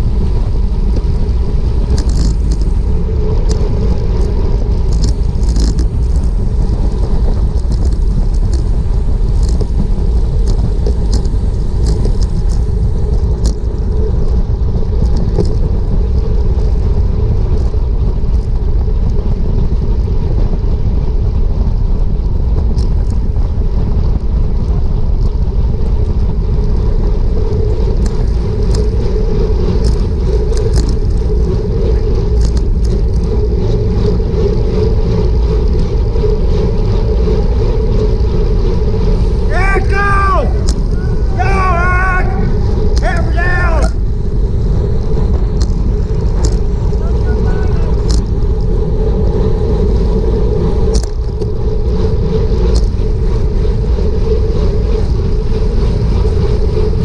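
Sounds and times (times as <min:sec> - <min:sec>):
wind rush on microphone: 0:00.0 - 0:57.0
faint ticks: 0:01.8 - 0:16.8, 0:27.4 - 0:35.8.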